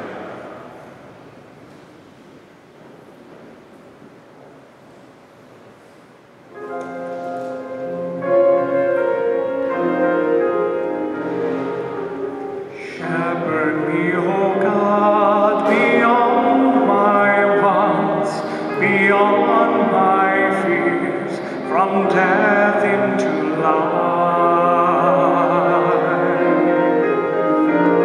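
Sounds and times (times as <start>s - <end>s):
keyboard playing held chords: 6.5s - 28.0s
solo singer with vibrato: 12.8s - 28.0s.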